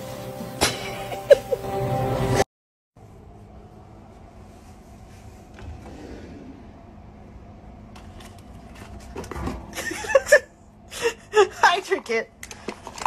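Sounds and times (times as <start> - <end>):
low room hum: 3.0 - 13.0.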